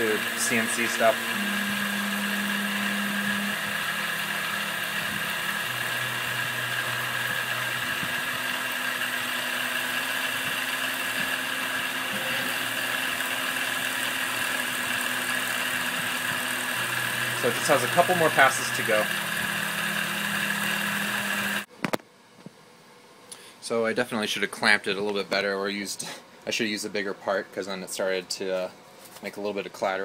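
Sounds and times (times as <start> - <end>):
low motor hum shifting pitch: 0.0 - 21.7
milling spindle whine: 0.0 - 21.7.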